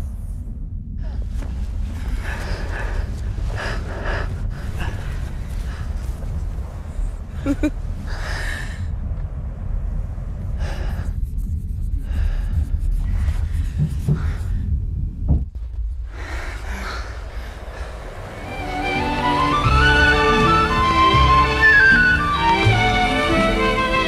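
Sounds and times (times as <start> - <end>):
steady low rumble: 0.0 - 24.0
person breathing hard: 1.0 - 6.5, 8.0 - 9.0, 10.5 - 15.0, 16.0 - 19.3.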